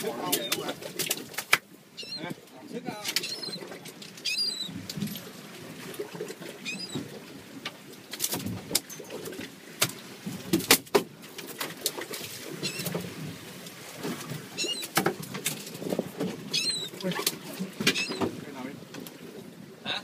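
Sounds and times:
wind and water rushing: 0.0 - 20.0
gull calls: 2.0 - 2.4, 3.1 - 4.8, 6.6 - 7.1, 12.6 - 13.0, 14.6 - 15.0, 16.5 - 17.0, 17.9 - 18.3
knocks and clatter on boat: 2.8 - 6.1, 6.7 - 19.2.

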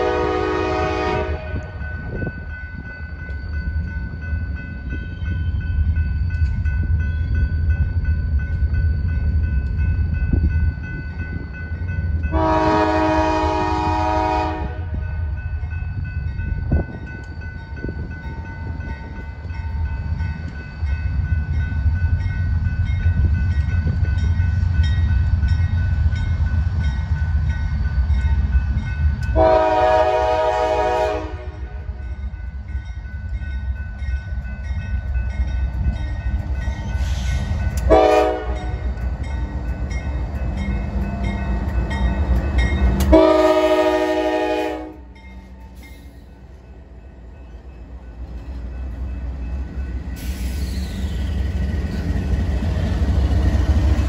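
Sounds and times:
locomotive air horn blasts: 0.0 - 1.8, 12.3 - 15.0, 29.4 - 31.9, 37.9 - 38.8, 43.1 - 45.1.

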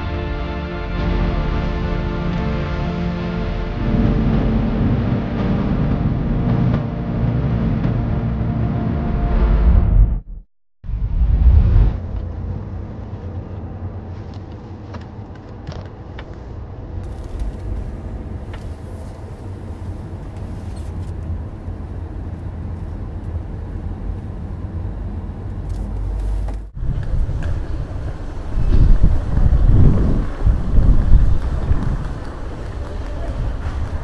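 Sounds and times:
road and engine rumble in car: 11.8 - 34.0.

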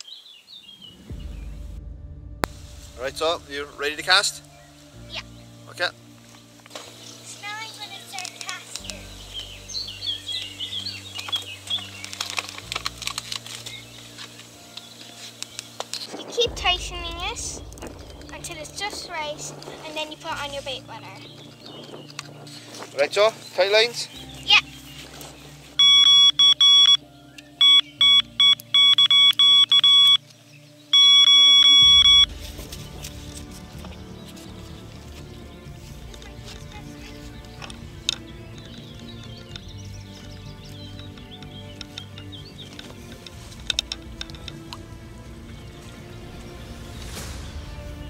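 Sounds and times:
small birds chirping: 0.0 - 1.6, 3.0 - 48.0
bite alarm rapid high-pitched beeps: 25.8 - 27.0, 27.6 - 30.2, 31.0 - 32.3
light irregular clicks: 36.0 - 44.9.

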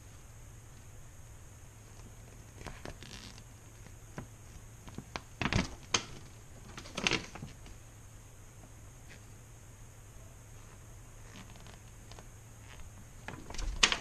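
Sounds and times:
paper rustling and crinkling: 1.8 - 7.8, 10.6 - 14.0.

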